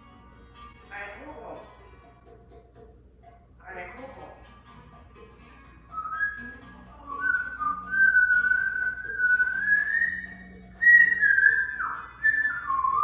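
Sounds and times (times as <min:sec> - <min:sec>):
parrot whistling a tune: 0:05.9 - 0:13.0.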